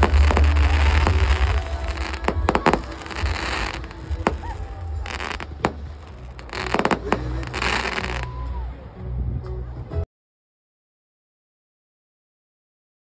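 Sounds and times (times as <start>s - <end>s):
fireworks bangs and crackling: 0.0s - 8.4s.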